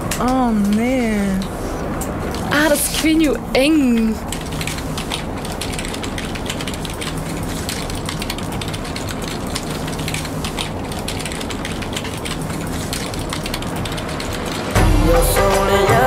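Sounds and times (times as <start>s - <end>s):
rapid mechanical clicking and rattling: 0.0s - 16.0s
loud music: 14.8s - 16.0s.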